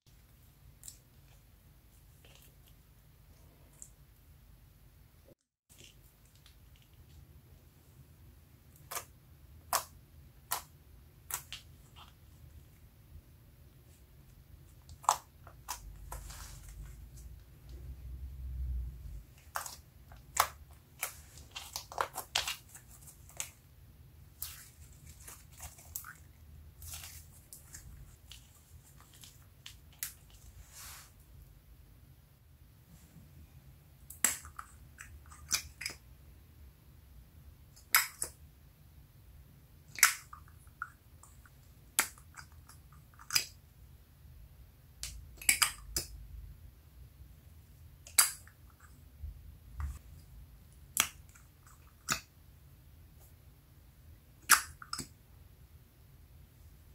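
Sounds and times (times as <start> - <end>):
low rumble: 16.9 - 19.2
lip gloss tubes clicking and popping: 45.0 - 46.2.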